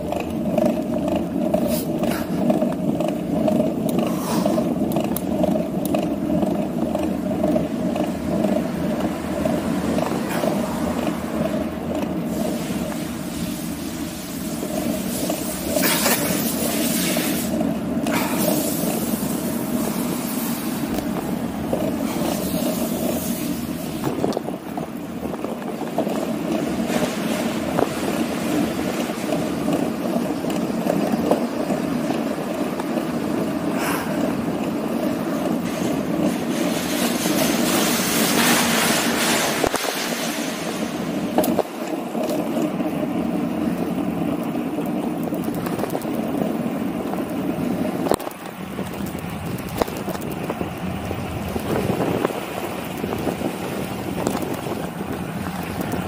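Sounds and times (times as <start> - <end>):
bicycle road noise: 0.0 - 56.0
wind rushing on microphone: 18.2 - 30.4, 45.2 - 56.0.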